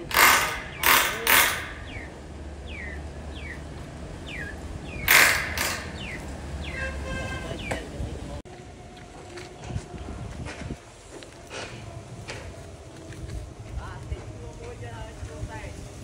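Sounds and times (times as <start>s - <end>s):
electric drill grinding into steel: 0.0s - 2.1s, 5.0s - 6.0s
drill motor hum: 0.0s - 2.2s, 4.9s - 6.4s
bird chirps: 0.7s - 7.9s.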